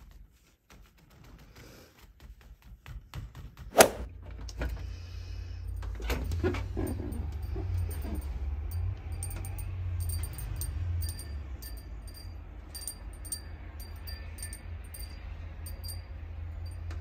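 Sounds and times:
wind chimes tinkling: 0:05.7 - 0:17.0.

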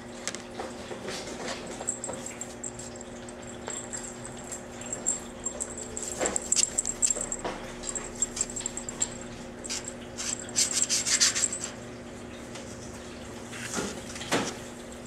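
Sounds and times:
steady low hum: 0:01.9 - 0:13.4.

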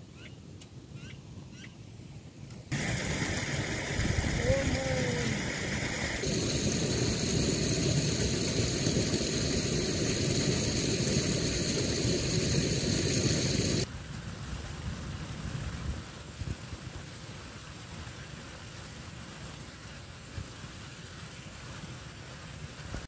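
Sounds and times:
quiet outdoor background: 0:00.0 - 0:14.6
water rushing over ground: 0:02.7 - 0:23.0.

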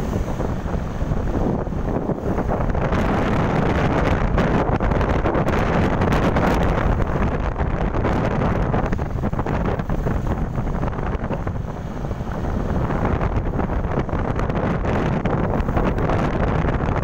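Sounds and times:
road noise: 0:00.0 - 0:17.0
wind buffeting microphone: 0:00.0 - 0:17.0.

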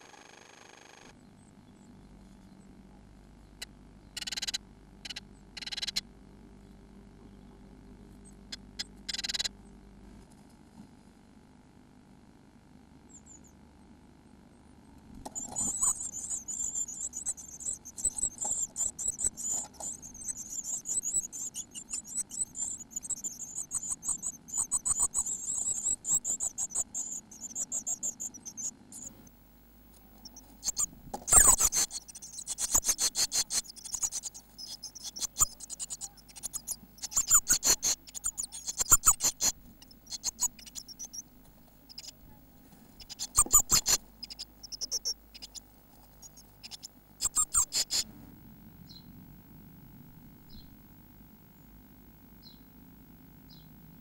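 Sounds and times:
nestlings cheeping: 0:04.2 - 0:06.0, 0:08.5 - 0:09.5, 0:15.3 - 0:53.9
scratching and knocking in nest box: 0:15.2 - 0:29.2, 0:29.9 - 0:48.1.

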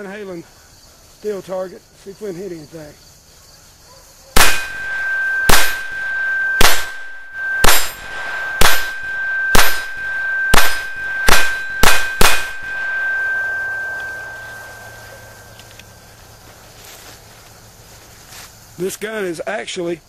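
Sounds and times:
pistol shots: 0:04.4 - 0:06.0, 0:06.6 - 0:08.0, 0:08.6 - 0:09.0, 0:10.6 - 0:12.6
steel plate ringing: 0:04.4 - 0:16.1.

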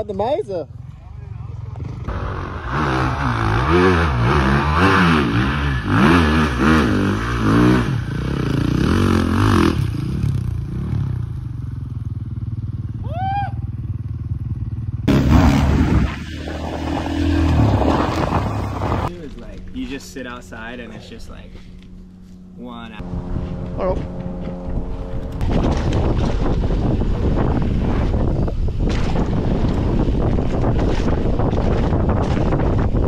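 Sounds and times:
dirt bike engine revving: 0:01.5 - 0:11.6, 0:14.0 - 0:19.1
wind noise: 0:15.1 - 0:20.0, 0:23.0 - 0:33.0.

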